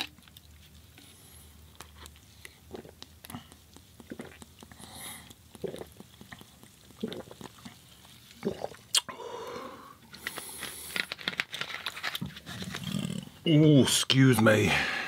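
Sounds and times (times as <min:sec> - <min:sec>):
wet chewing and mouth sounds: 0:00.0 - 0:09.1
small mouth clicks: 0:01.8 - 0:07.8.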